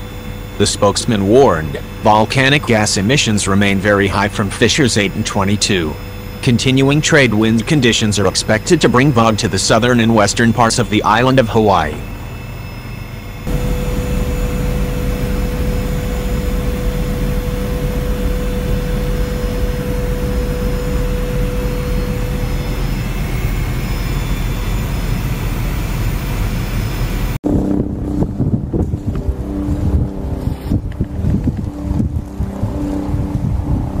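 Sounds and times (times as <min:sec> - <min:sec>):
aircraft engine noise in cabin: 0:00.0 - 0:34.0
thin steady whine: 0:00.0 - 0:34.0
wind buffeting microphone: 0:27.4 - 0:34.0.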